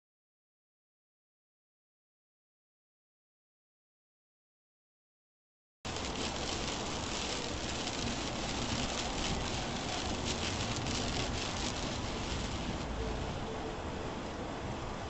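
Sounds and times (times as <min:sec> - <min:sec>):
rain hitting a windshield: 0:05.9 - 0:12.9
tyre and road noise: 0:05.9 - 0:15.0.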